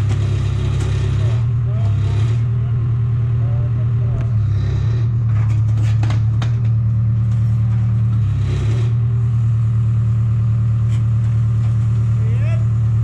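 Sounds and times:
sharp knocks and clatter: 0:00.0 - 0:02.5, 0:04.7 - 0:09.0
large engine running: 0:00.0 - 0:13.0.

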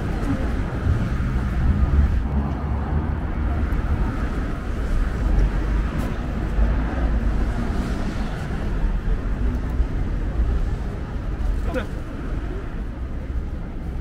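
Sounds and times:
road traffic rumble: 0:00.0 - 0:14.0
urban noise: 0:00.0 - 0:14.0.

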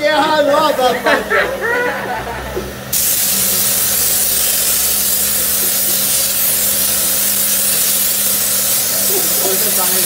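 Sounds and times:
hose sprayer hissing: 0:02.9 - 0:10.0.

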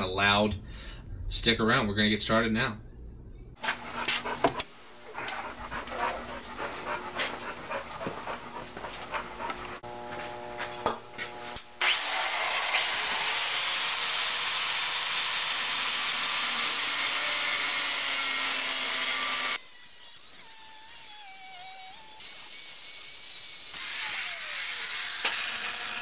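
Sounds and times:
angle grinder grinding steel: 0:11.8 - 0:26.0.

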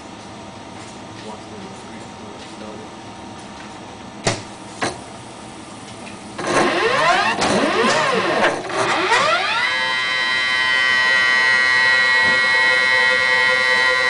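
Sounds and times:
robot motors whining: 0:06.4 - 0:14.0.

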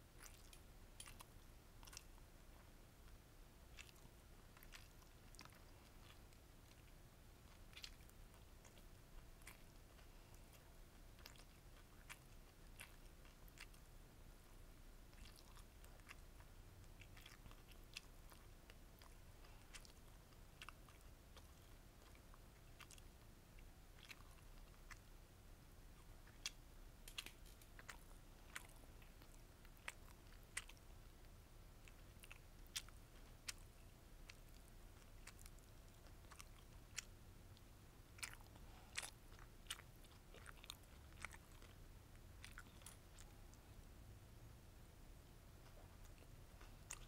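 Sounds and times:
close chewing mouth sounds: 0:00.0 - 0:25.2, 0:25.8 - 0:44.0, 0:45.2 - 0:47.0.

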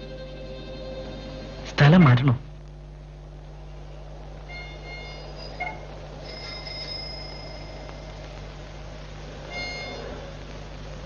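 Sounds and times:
faint low hum: 0:00.0 - 0:11.0
bicycle bell ringing: 0:04.9 - 0:08.2.

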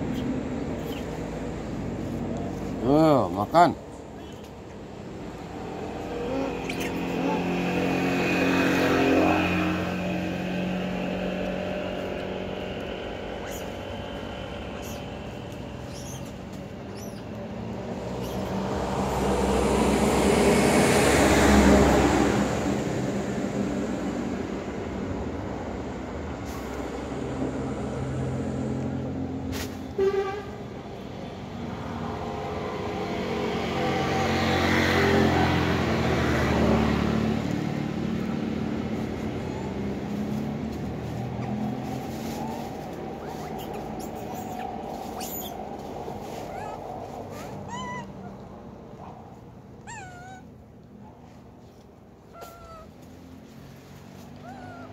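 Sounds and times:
vehicles passing: 0:00.0 - 0:54.9
brief high horn toot: 0:30.0 - 0:30.6.

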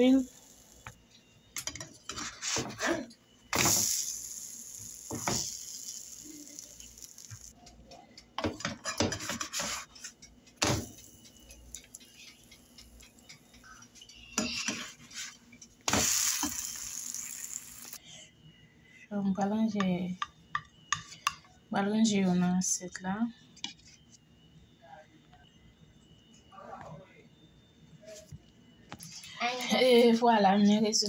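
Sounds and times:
pancake batter sizzling: 0:00.0 - 0:01.0, 0:03.5 - 0:07.6, 0:09.1 - 0:18.0.

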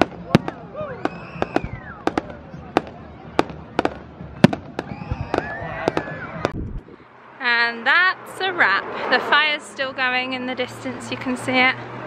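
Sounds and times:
firework bangs: 0:00.0 - 0:07.0
crowd voices: 0:00.0 - 0:12.0.

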